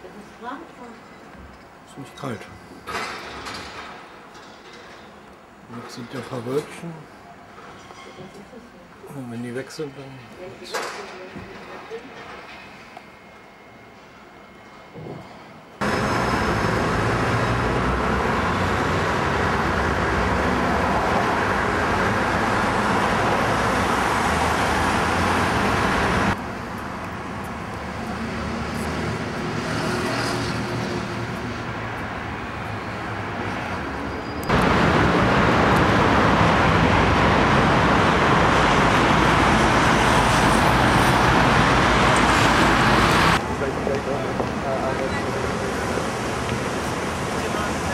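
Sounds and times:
passing cars: 15.8 - 47.9.

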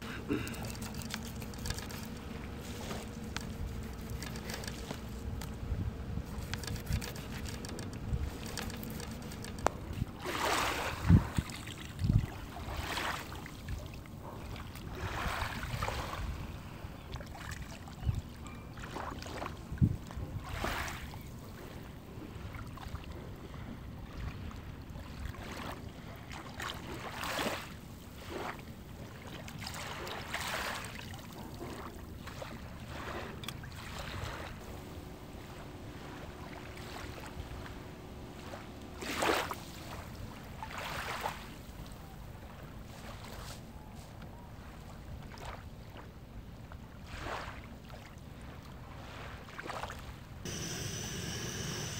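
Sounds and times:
lapping sea water: 0.0 - 46.8
water splashing swishes: 8.2 - 16.4.

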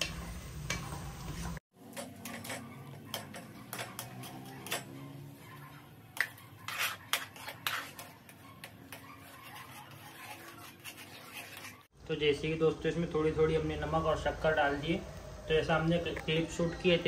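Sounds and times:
metal spoon scraping pan: 0.0 - 11.9.

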